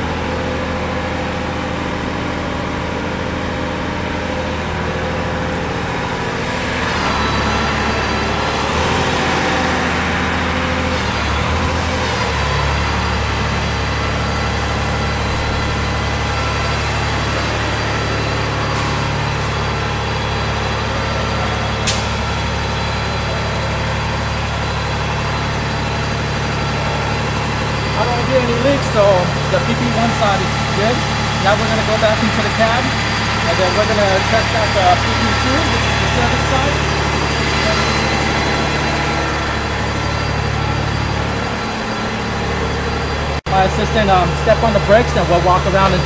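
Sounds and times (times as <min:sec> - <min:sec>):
low machine drone: 0:00.0 - 0:46.0
sharp click: 0:21.9 - 0:22.2.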